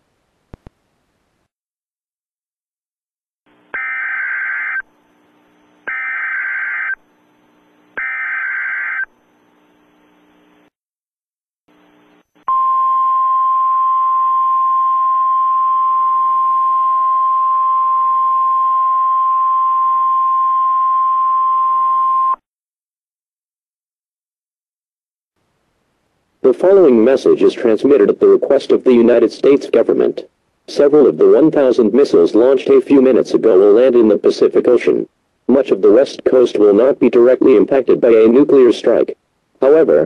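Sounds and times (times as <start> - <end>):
buzzing data bursts: 3.7 - 4.9, 5.8 - 7.0, 8.0 - 9.1
long steady attention tone: 11.7 - 22.4.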